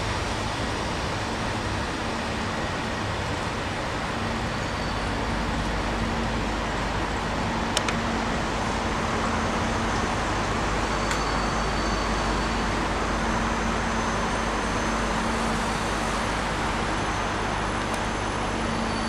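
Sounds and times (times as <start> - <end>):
diesel locomotive engine hum: 0.0 - 19.0
train rumbling on track: 0.0 - 19.0.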